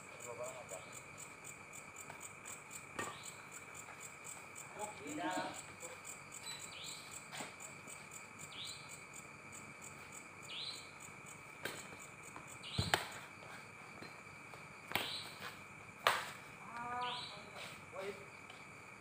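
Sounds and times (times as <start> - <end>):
high insect chirring: 0.0 - 19.0
rackets hitting a shuttlecock: 12.7 - 13.2, 14.9 - 15.3, 16.0 - 16.4.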